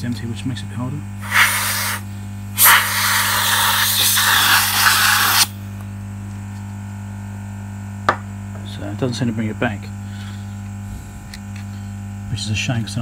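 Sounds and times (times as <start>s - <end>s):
aerosol can hissing: 1.2s - 5.6s.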